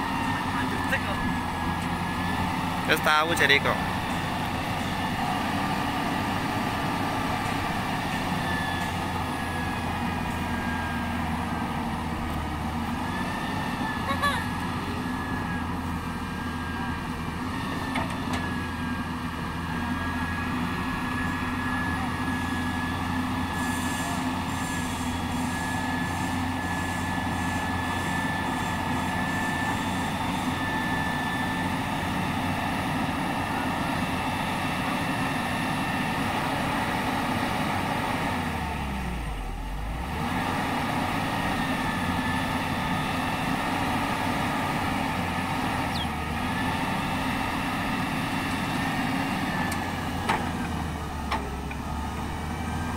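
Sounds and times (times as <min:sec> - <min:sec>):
diesel engine running: 0:00.0 - 0:52.9.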